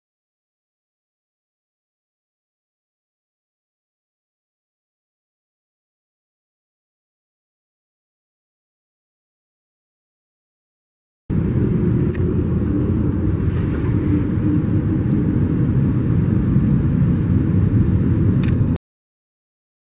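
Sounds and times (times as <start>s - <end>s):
muffled jet rumble: 11.3s - 18.8s.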